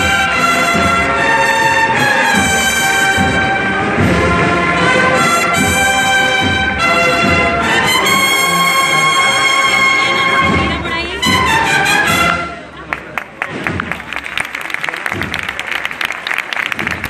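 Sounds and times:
drums: 0.0 - 12.6, 13.3 - 16.0
brass band chords: 0.0 - 12.9.

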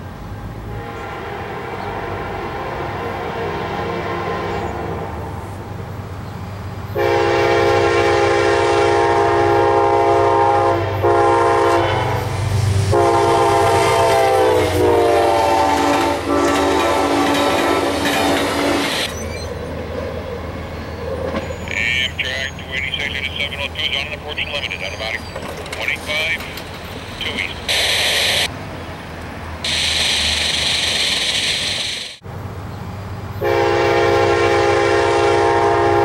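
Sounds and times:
passing train cars rumbling: 0.0 - 36.0
train horn blasts: 0.6 - 5.7, 6.9 - 19.1, 33.4 - 36.0.

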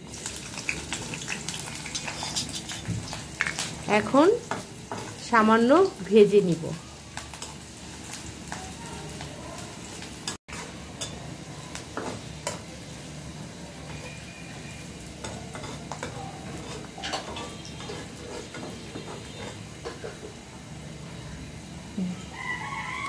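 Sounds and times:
onions sizzling in hot oil: 0.0 - 23.0
metal spatula scraping pan: 1.7 - 3.3, 13.9 - 20.3.

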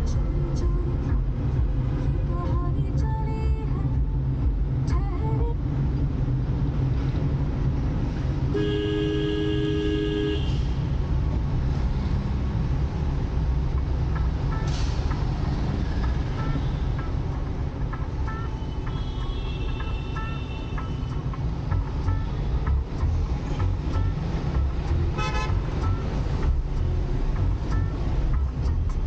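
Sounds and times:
road traffic rumble: 0.0 - 29.0
vehicle horn honk: 8.5 - 10.7, 25.1 - 25.6.

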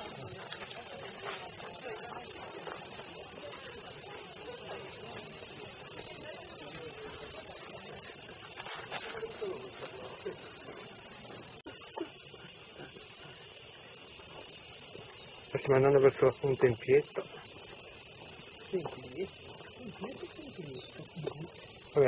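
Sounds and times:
faint voices murmuring: 0.0 - 13.6
cicadas droning: 0.0 - 22.0.

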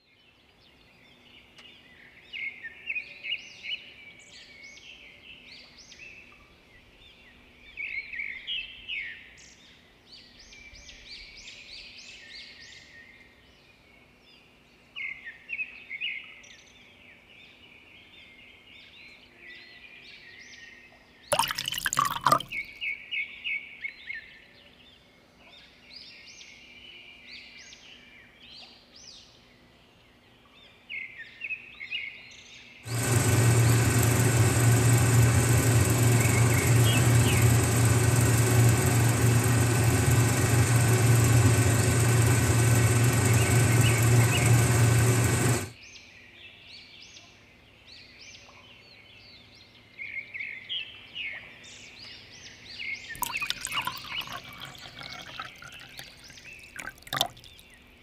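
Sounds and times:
clattering as mix poured: 21.3 - 22.7, 32.9 - 45.7, 53.2 - 57.7
small electric mixer motor: 32.9 - 45.8, 53.2 - 57.6.

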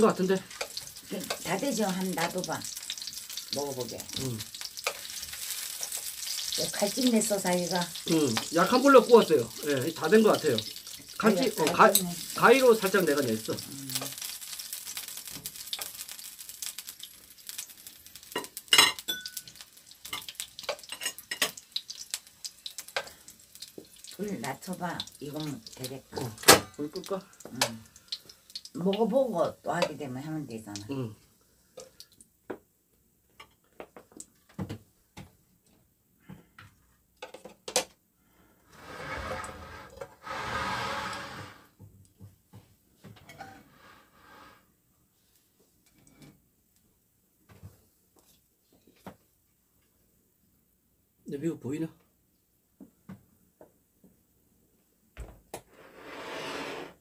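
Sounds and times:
sausages sizzling in a frying pan: 0.0 - 32.2
metal tongs scraping a pan: 0.4 - 1.6, 4.6 - 6.6, 10.2 - 12.9, 18.3 - 21.6
rough noise: 38.7 - 41.8, 55.7 - 57.0.

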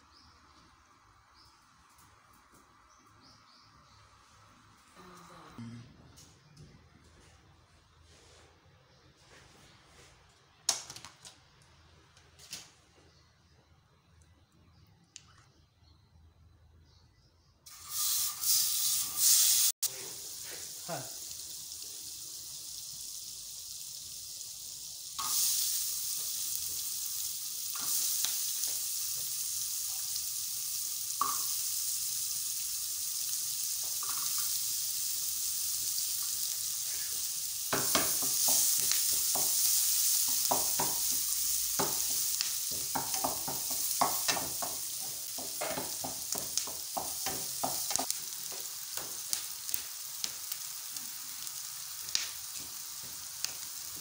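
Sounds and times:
onions sizzling in a frying pan: 17.7 - 54.0.

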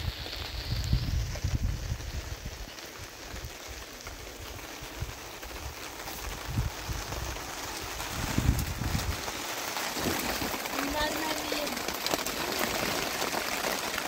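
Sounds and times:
wind gusting on microphone: 0.0 - 9.4
rain falling: 0.0 - 14.0.

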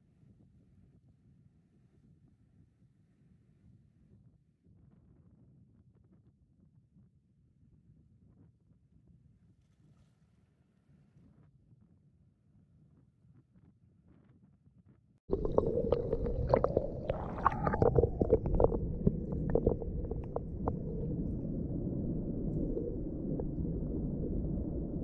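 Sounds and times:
muffled underwater rumble: 15.3 - 25.0.

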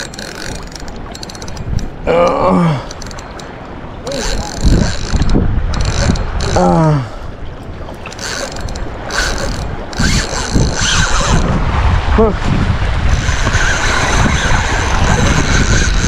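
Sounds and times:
fishing reel ratcheting whir: 0.0 - 1.8, 4.1 - 6.7, 8.1 - 11.6, 13.1 - 16.0.

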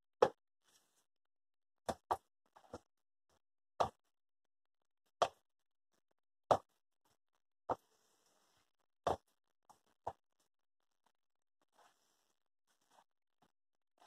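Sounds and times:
taps and plops of food in batter: 1.9 - 2.9, 3.8 - 4.1, 6.5 - 6.8, 9.1 - 10.3.

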